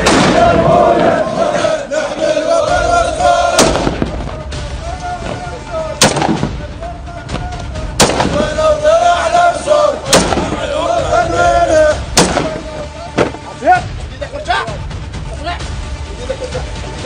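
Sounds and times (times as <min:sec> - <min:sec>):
loud sharp bangs: 0:00.0 - 0:01.3, 0:03.5 - 0:04.5, 0:05.2 - 0:06.8, 0:07.9 - 0:08.8, 0:10.1 - 0:10.8, 0:12.1 - 0:13.5
men chanting in unison: 0:00.0 - 0:06.0, 0:06.8 - 0:13.1.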